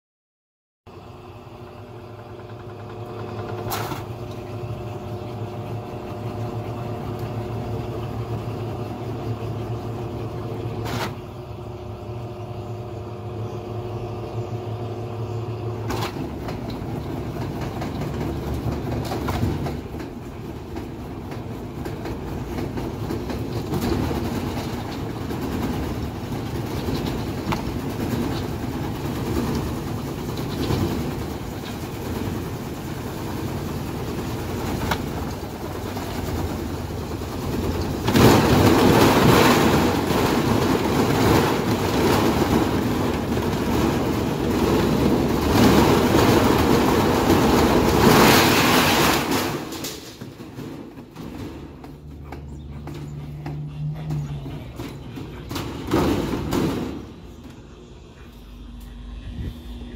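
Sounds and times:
washing machine drum spinning: 0:01.8 - 0:57.8
rattling and knocking: 0:15.9 - 0:57.5.

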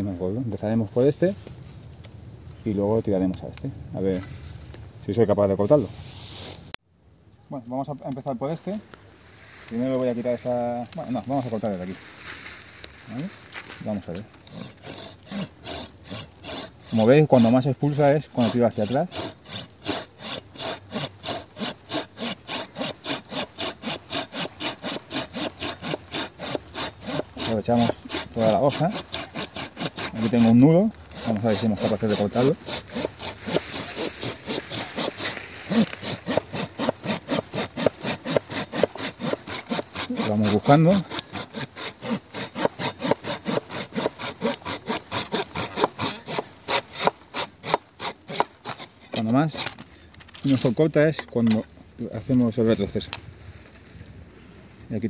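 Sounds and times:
pull saw rasping through branch: 0:13.1 - 0:51.6.

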